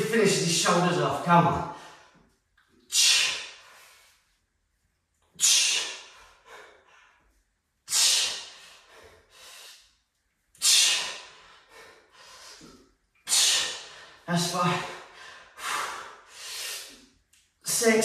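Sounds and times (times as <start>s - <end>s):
man exhaling forcefully: 2.9s - 3.6s, 5.4s - 6.7s, 7.9s - 9.8s, 10.6s - 11.4s, 13.3s - 14.1s.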